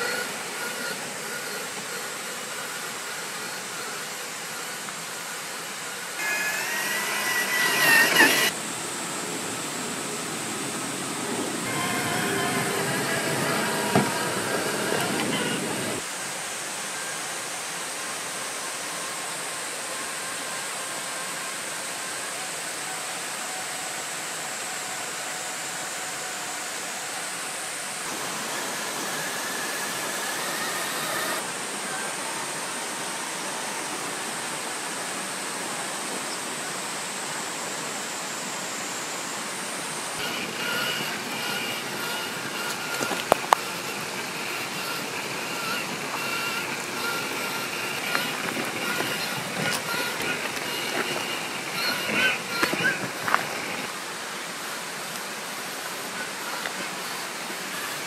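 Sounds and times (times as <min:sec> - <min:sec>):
electric motor and gear whine: 0:00.0 - 0:58.0.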